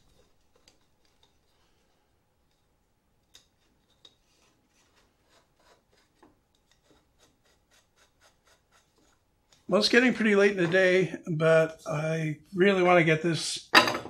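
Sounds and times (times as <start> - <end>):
small metal ticks and rubbing: 0.0 - 8.1.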